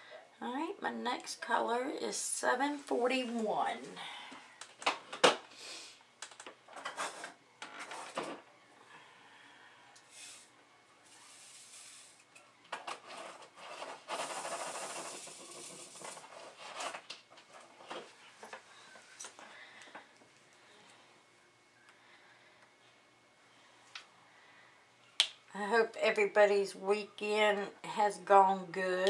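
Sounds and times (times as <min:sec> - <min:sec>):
plastic beads shaken in a tray: 0:11.1 - 0:12.2, 0:13.0 - 0:17.0
plastic bag rustling: 0:12.9 - 0:18.2.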